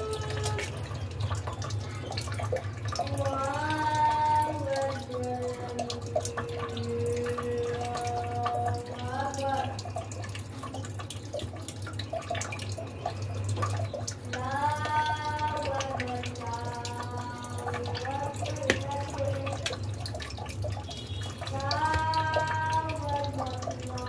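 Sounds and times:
high wavering voice: 0.0 - 0.9.

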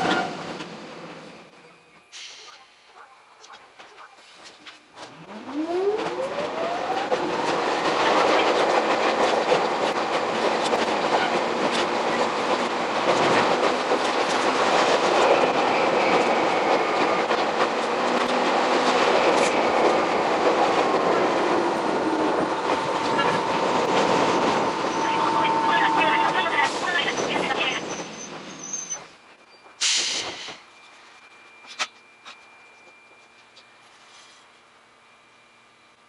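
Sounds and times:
train wheels clattering on rails: 6.9 - 30.8
electric train motor whine: 21.6 - 26.5.

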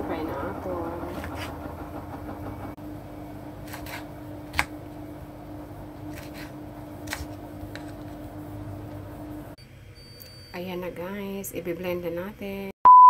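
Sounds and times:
washing machine hum: 0.0 - 12.6
knife chopping on cutting board: 3.6 - 4.7.

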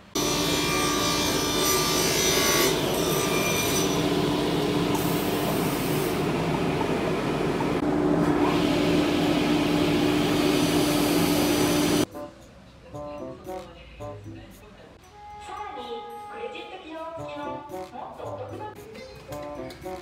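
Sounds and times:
saw cutting wood: 0.2 - 6.2.

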